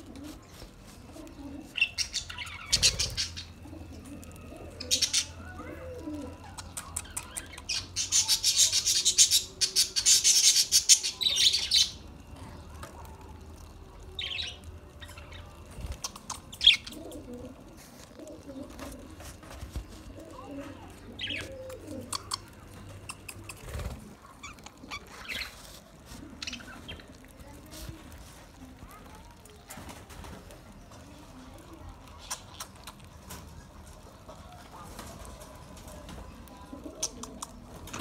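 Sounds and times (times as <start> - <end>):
wings flapping: 22.8 - 25.6.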